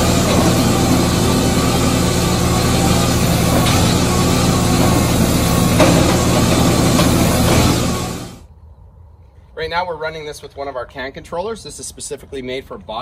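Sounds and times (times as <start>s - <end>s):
diesel engine idling: 0.0s - 8.5s.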